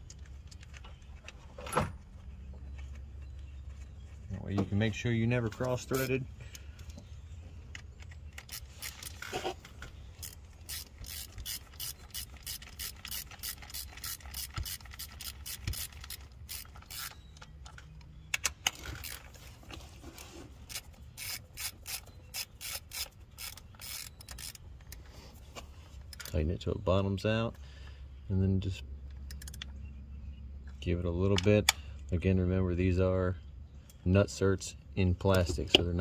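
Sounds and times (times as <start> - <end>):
hand ratchet clicking: 10.2 - 17.2, 20.7 - 25.0.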